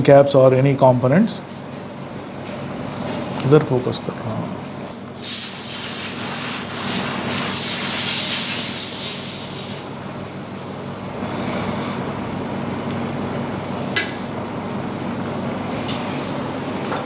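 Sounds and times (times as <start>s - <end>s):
low mechanical hum: 0.0s - 17.0s
hiss: 5.2s - 10.0s.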